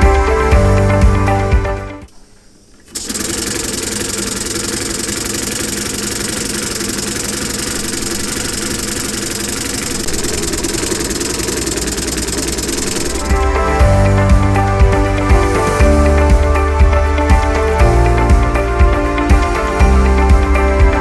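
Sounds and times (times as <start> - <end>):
pneumatic engine clattering: 2.9 - 13.4.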